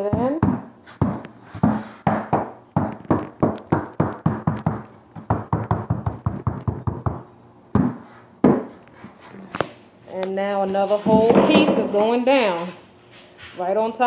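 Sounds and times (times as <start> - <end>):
hammer knocking on floor plank: 0.1 - 7.2, 7.8 - 8.7.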